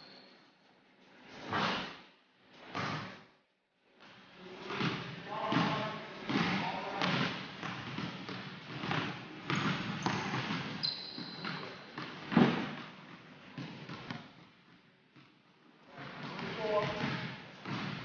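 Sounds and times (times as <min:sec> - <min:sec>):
basketballs bouncing on hardwood: 0:04.7 - 0:14.4, 0:16.0 - 0:18.0
high squeak: 0:10.8 - 0:11.6.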